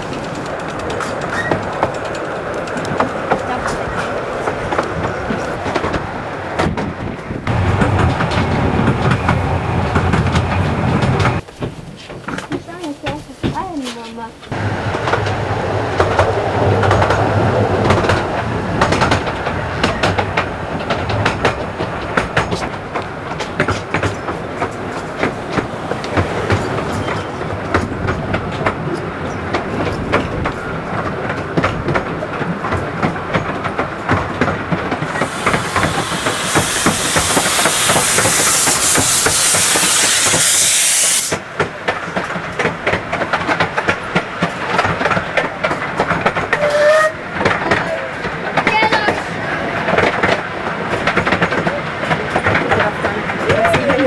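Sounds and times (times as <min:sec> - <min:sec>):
railway carriage rattling on track: 0:00.0 - 0:54.0
loud steam hiss: 0:35.1 - 0:41.4.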